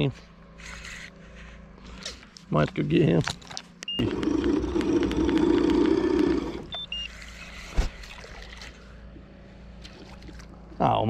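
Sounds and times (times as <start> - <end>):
electric motor whining: 3.9 - 7.8
rapid clicking: 4.1 - 6.5.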